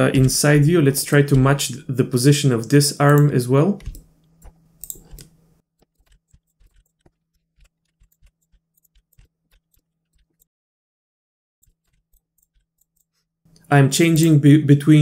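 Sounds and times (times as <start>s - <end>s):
keyboard and mouse clicks: 3.0s - 10.5s, 11.6s - 14.4s.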